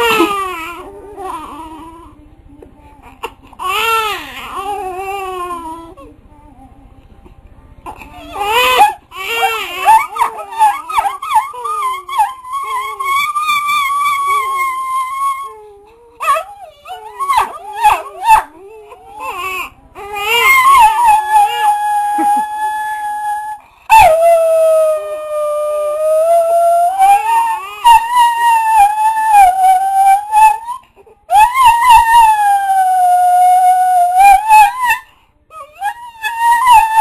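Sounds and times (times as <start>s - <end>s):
dog howling: 8.2s - 37.0s.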